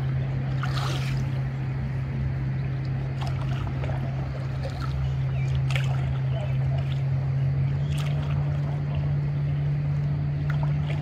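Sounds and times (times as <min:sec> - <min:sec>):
low hum: 0:00.0 - 0:11.0
water lapping and splashing: 0:00.0 - 0:11.0.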